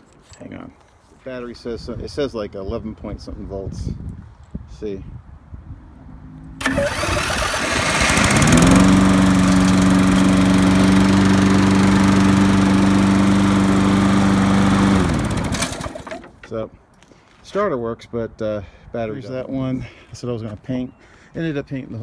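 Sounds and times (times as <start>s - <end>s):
mower engine running: 6.6s - 16.3s
electric starter cranking: 6.6s - 16.4s.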